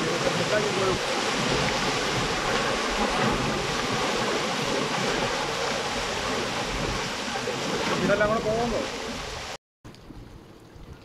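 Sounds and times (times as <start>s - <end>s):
heavy rain and runoff rushing: 0.0s - 11.0s.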